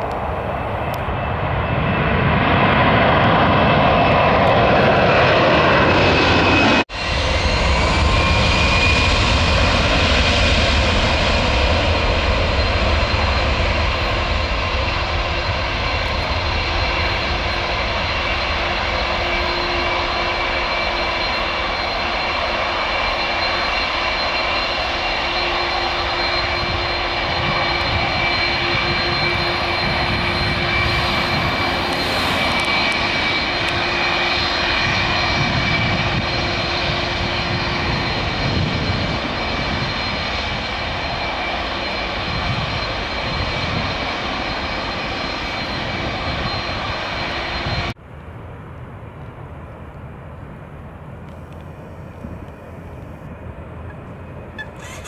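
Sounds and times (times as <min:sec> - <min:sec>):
jet engines roaring: 0:00.0 - 0:55.0.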